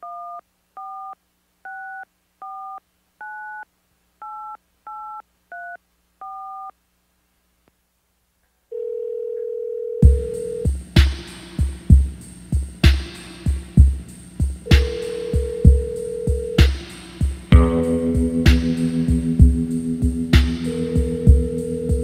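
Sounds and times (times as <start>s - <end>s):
steady low telephone tone: 8.7s - 10.7s, 14.7s - 16.8s, 20.7s - 22.0s
music with heavy beat: 10.0s - 22.0s.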